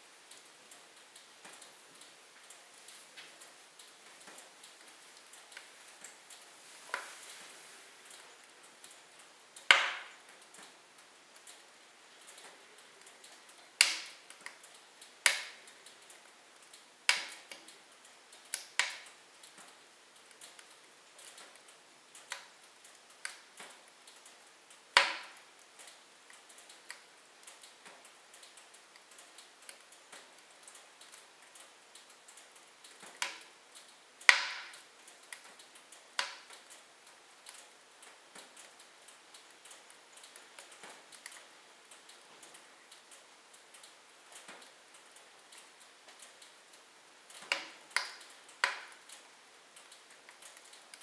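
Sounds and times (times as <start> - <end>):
logs crackling in fireplace: 0.0 - 51.0
sharp fire pops: 9.6 - 10.2, 13.8 - 14.6, 15.2 - 15.6, 25.0 - 25.4, 34.3 - 35.4, 47.4 - 49.0.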